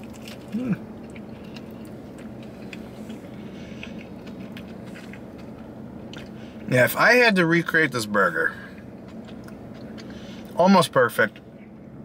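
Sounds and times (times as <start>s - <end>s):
person chewing: 0.0s - 6.7s, 8.7s - 10.6s
low hum: 0.0s - 12.0s.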